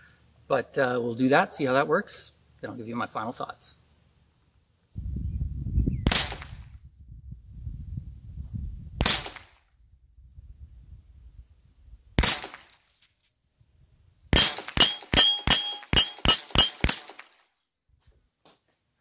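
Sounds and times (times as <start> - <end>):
rifle shots cracking: 6.1 - 6.6, 9.0 - 9.6, 12.2 - 12.7, 14.3 - 17.4
metallic ringing: 14.8 - 16.9.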